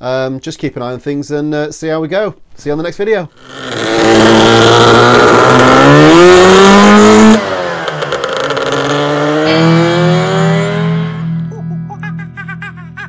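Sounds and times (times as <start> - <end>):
scooter engine accelerating: 3.4 - 11.5.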